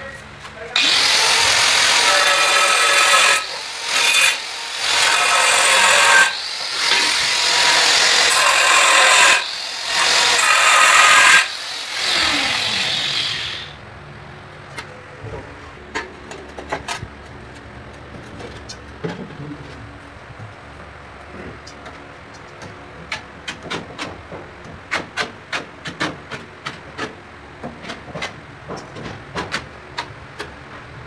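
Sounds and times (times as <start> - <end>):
angle grinder cutting tile: 0.8 - 13.8
grinder winding down: 0.8 - 13.8.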